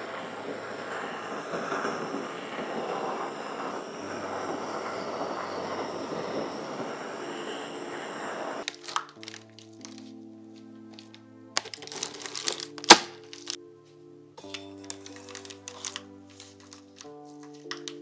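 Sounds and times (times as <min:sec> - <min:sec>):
blowtorch flame hissing: 0:00.0 - 0:09.0.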